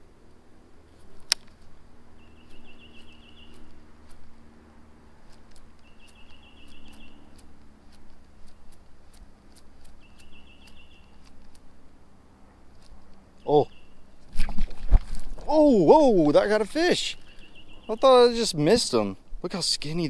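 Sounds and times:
songbird high trill: 0:02.2 - 0:03.7, 0:05.8 - 0:07.4, 0:10.0 - 0:11.3, 0:13.4 - 0:14.2, 0:16.4 - 0:18.6.

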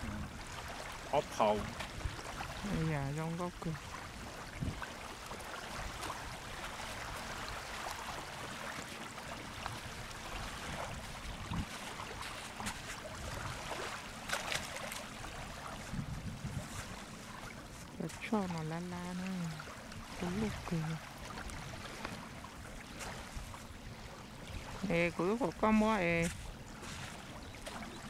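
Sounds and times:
waves lapping on gravel shore: 0:00.0 - 0:28.0
wind noise: 0:04.5 - 0:04.9, 0:09.7 - 0:11.8, 0:15.7 - 0:17.0.

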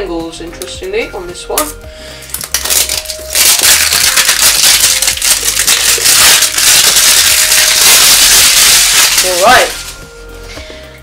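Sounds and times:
packaging crinkling and rustling: 0:02.4 - 0:10.0.

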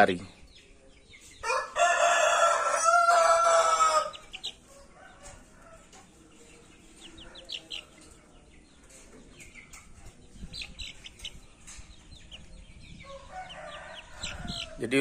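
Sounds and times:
chick peeping: 0:00.0 - 0:15.0
rooster crowing: 0:01.4 - 0:04.2, 0:13.0 - 0:14.9.

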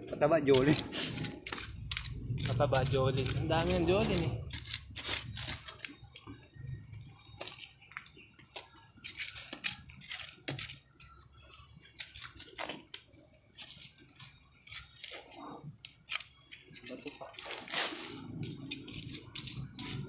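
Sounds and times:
hand tool scraping soil: 0:00.0 - 0:06.0, 0:16.0 - 0:20.0.

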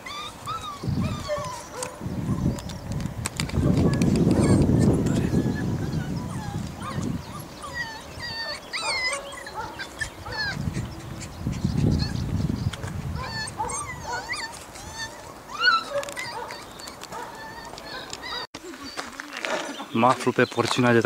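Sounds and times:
small dog whining: 0:00.0 - 0:02.5, 0:03.6 - 0:18.5
low rumble on microphone: 0:00.7 - 0:08.5.

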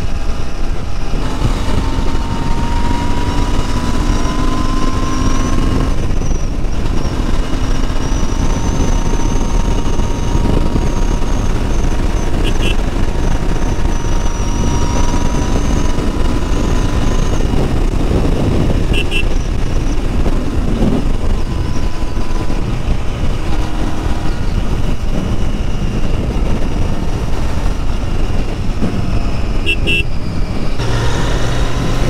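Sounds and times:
motorcycle engine running: 0:00.0 - 0:32.0
wind and road noise: 0:00.0 - 0:32.0
short high beeps: 0:12.2 - 0:17.4.

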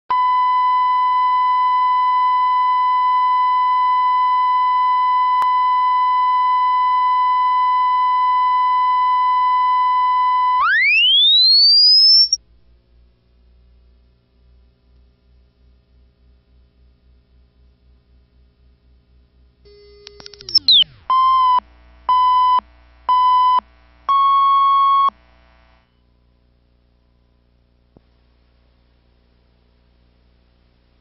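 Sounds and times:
faint low hum: 0:00.1 - 0:31.0
steady reference tone: 0:10.6 - 0:12.4
single click: 0:20.0 - 0:20.6.

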